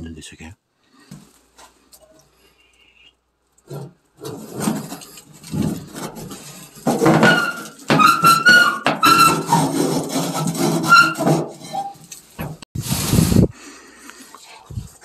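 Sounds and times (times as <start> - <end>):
metal scraping on metal: 3.6 - 12.6
latch squeaking: 7.0 - 9.6.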